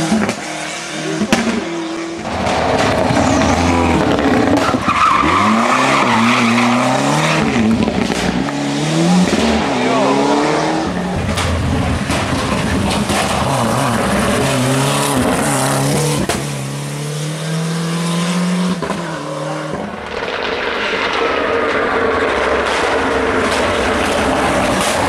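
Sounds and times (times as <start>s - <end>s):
car approaching: 0.0s - 25.0s
rally car engine revving: 0.0s - 25.0s
exhaust cracks: 1.2s - 8.6s, 10.8s - 16.7s, 19.7s - 25.0s.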